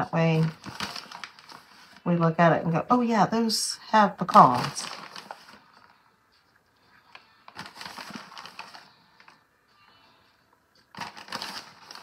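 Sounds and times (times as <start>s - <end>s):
plastic bag crinkling: 0.0s - 2.1s, 4.2s - 6.0s, 7.2s - 9.4s, 10.9s - 12.0s.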